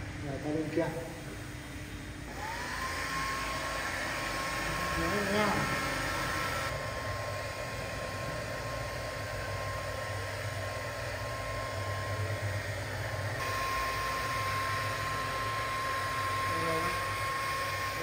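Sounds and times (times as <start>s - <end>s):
hair dryer running: 0.0s - 18.0s.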